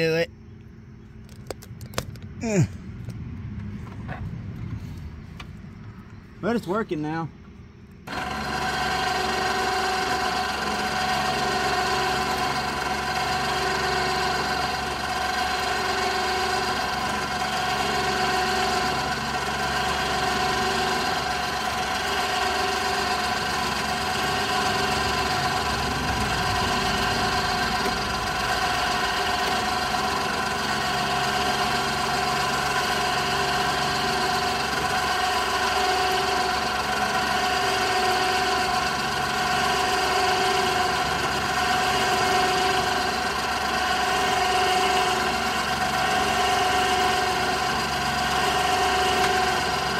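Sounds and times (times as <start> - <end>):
electric winch humming: 8.0 - 49.9.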